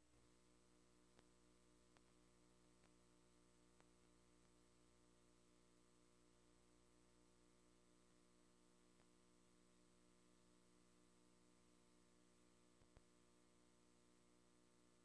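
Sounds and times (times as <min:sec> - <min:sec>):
faint hiss and hum: 0:00.0 - 0:15.0
faint tick: 0:01.1 - 0:01.3, 0:01.9 - 0:02.2, 0:02.8 - 0:03.0, 0:03.8 - 0:04.6, 0:09.0 - 0:09.2.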